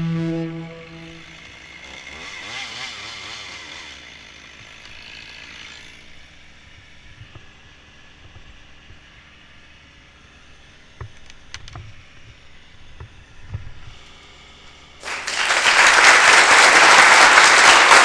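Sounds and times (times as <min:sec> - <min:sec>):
chainsaw engine idling: 0:01.3 - 0:10.9.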